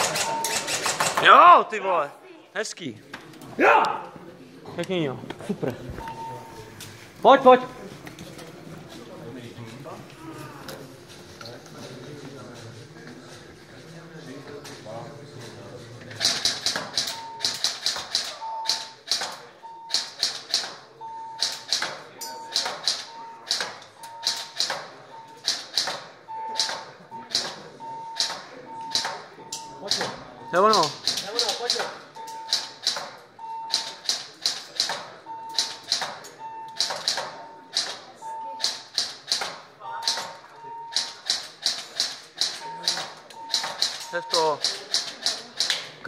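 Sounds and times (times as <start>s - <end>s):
short electronic beeps: 0.0s - 0.8s, 6.0s - 6.8s, 17.0s - 17.6s, 18.4s - 19.0s, 21.0s - 21.6s, 22.3s - 25.6s, 26.2s - 32.8s, 33.4s - 34.0s, 35.2s - 38.8s, 39.9s - 41.2s, 42.6s - 44.6s
short electronic beep: 42.6s - 44.6s.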